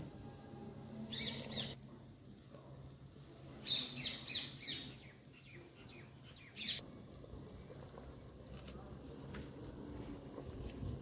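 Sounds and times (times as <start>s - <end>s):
bird chirping: 1.1s - 1.8s, 3.6s - 6.8s.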